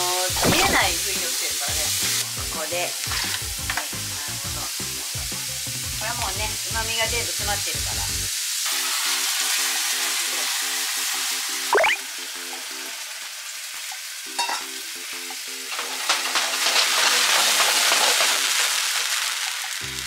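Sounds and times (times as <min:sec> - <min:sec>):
bean sprouts sizzling in pan: 0:00.0 - 0:20.0
water poured into hot pan: 0:08.4 - 0:20.0.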